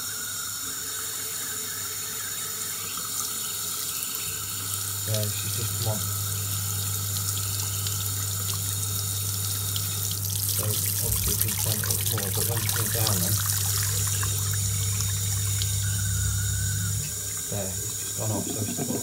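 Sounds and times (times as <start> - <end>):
tap running into washbasin: 0.0 - 15.9, 16.8 - 19.0
steady low hum: 4.6 - 19.0.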